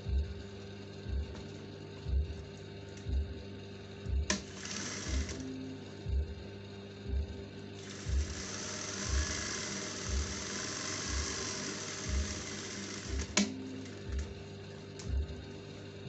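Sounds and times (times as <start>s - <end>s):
background music with low beat: 0.0s - 16.0s
sewing machine running: 4.3s - 5.6s, 7.8s - 14.3s.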